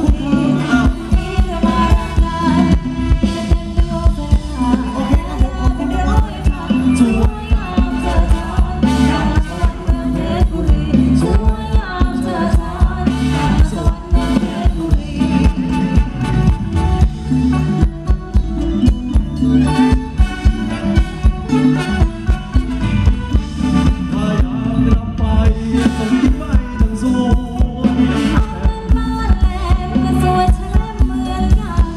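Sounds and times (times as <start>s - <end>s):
person singing: 0.0s - 16.3s, 23.6s - 31.9s
band playing dance music: 0.0s - 31.9s.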